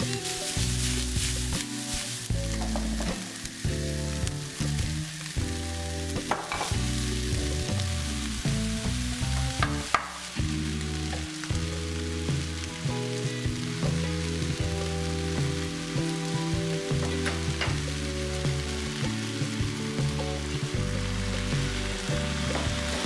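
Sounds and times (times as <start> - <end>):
soft background music: 0.0 - 23.0
vegetables sizzling in oil: 0.0 - 23.0
sharp knocks on pan: 6.3 - 6.8, 9.6 - 10.2.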